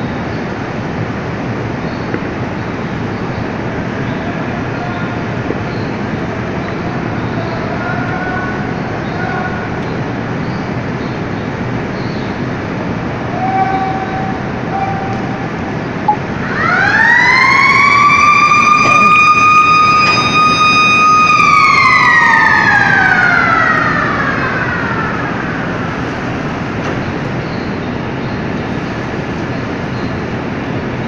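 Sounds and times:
plant machinery noise: 0.0s - 21.9s
motor-driven warning siren wailing: 2.8s - 11.3s, 12.4s - 27.2s.

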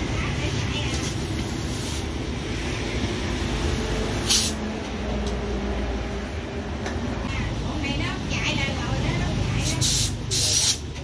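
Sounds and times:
compressed air hiss: 1.0s - 2.2s, 4.1s - 4.6s, 9.6s - 10.9s.

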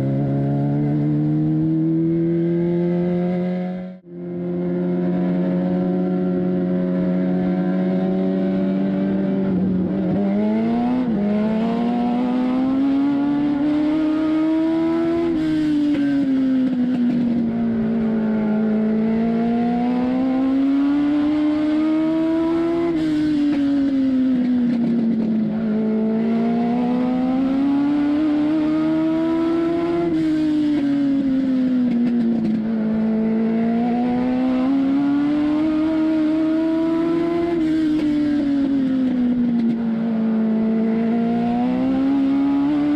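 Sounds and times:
race car engine revving: 0.0s - 16.4s, 17.1s - 31.4s, 32.2s - 42.9s.

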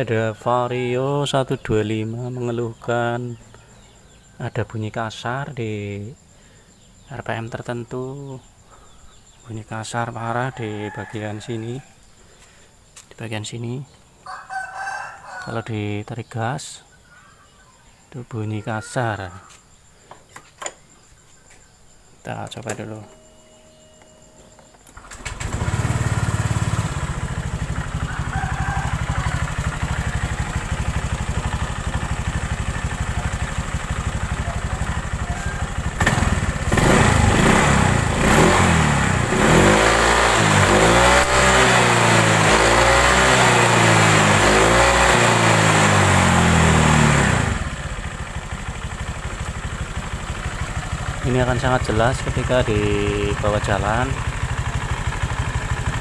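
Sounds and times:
scooter engine idling and revving: 0.0s - 4.5s, 24.9s - 56.0s
rough rattling from scooter: 24.5s - 38.2s, 47.5s - 56.0s.

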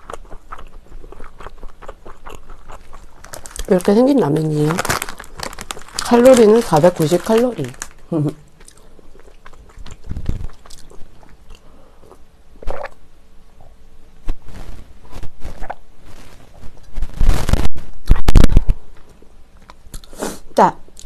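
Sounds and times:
person sipping and gulping water: 9.7s - 13.0s
microphone noise bursts: 10.0s - 10.6s, 14.2s - 19.0s.

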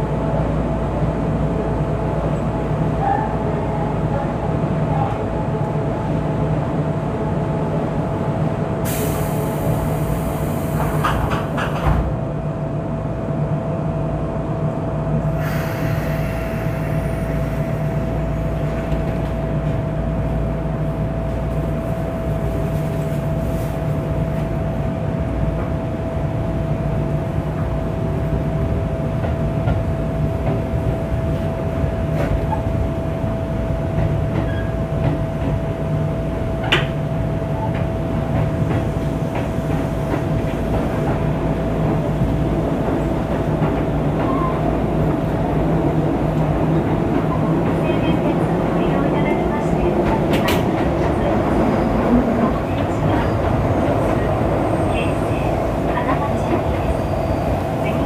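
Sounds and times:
train rumble with whine: 0.0s - 58.0s
hiss: 8.9s - 11.2s, 15.4s - 17.9s.

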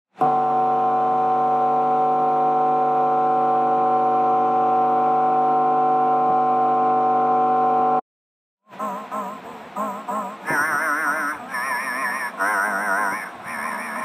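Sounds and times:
drone of held tones: 0.2s - 8.0s.

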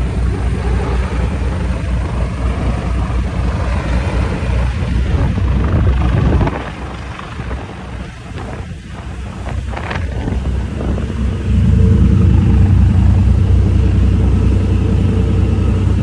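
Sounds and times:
ferry engines throbbing rumble: 0.0s - 16.0s
wind on microphone: 0.0s - 16.0s.

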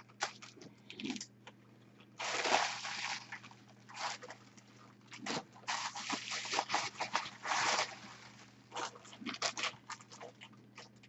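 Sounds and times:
plastic bag rustling: 2.2s - 10.3s
bubble wrap crinkling: 2.2s - 10.9s.

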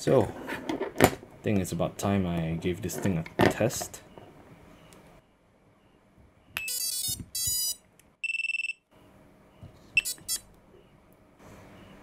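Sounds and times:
electronic beeps: 4.8s - 8.8s, 9.5s - 11.0s.

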